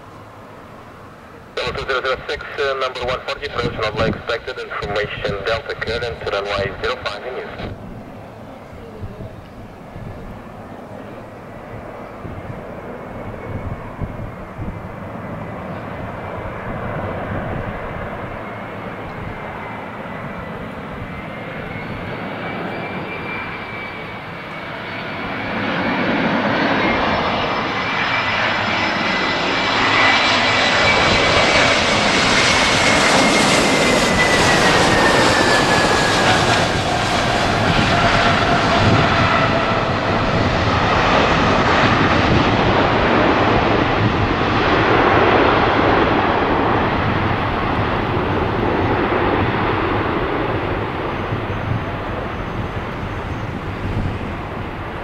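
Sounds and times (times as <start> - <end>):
jet engines landing: 0.0 - 55.0.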